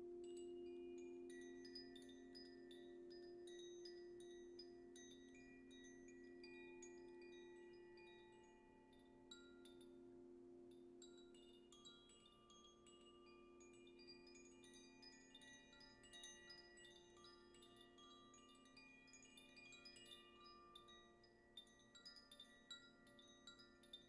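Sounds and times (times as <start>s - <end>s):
wind chime ringing: 0.0s - 24.0s.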